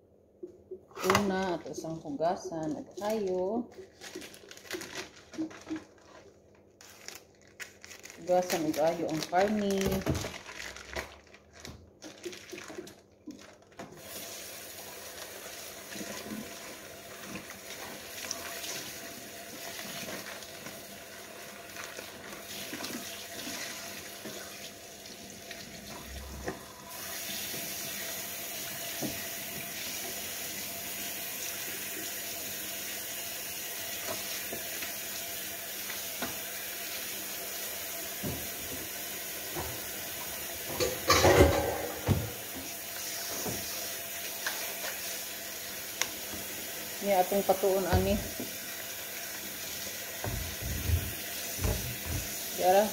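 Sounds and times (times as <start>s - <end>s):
tap water running into sink: 14.0s - 52.9s.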